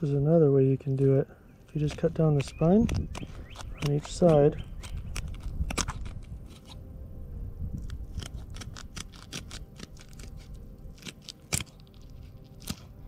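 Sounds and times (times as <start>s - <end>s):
shears snipping through bone: 0.8s - 6.8s, 7.8s - 13.0s
bone snapping: 1.7s - 6.8s, 7.8s - 13.0s.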